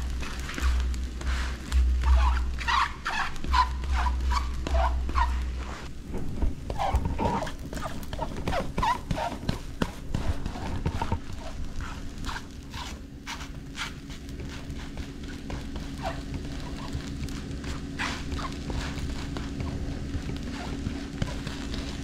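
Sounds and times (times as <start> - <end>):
spatula patting dough in pan: 6.4 - 22.0.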